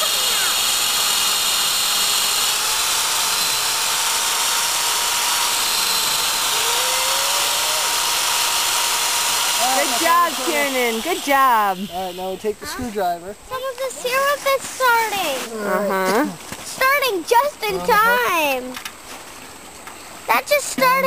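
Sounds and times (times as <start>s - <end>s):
electric drill boring into wood: 0.0s - 12.5s.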